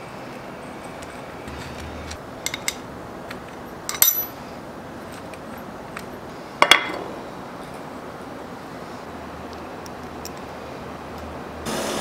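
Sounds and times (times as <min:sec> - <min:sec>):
steel parts clinking on gears: 0:00.6 - 0:04.4.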